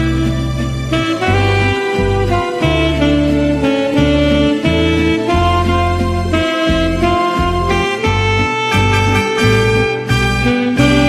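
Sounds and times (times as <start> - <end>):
pulsing bass line: 0.0 - 11.0
held melody note: 0.9 - 11.0.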